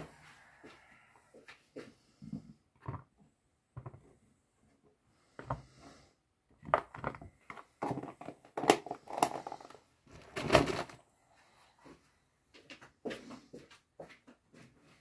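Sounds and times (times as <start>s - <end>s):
plastic container clattering: 6.6s - 11.0s.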